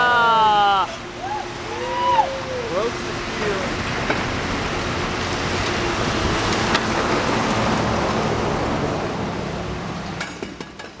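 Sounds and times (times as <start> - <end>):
diesel engines running: 0.0 - 11.0.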